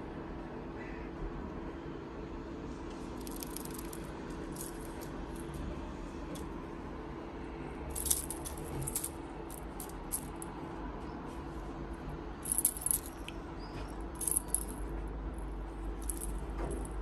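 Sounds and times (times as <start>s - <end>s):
cat toy rustling and jingling: 3.2s - 5.5s, 7.9s - 10.5s, 12.4s - 13.3s, 14.0s - 14.9s, 16.0s - 17.0s.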